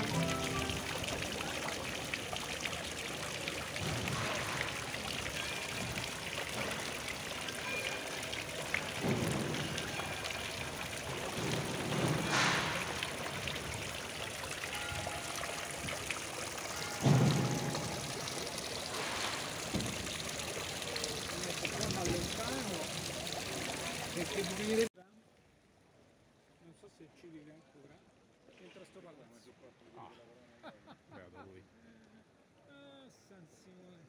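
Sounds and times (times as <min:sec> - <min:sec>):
fountain water splashing into basin: 0:00.0 - 0:24.9.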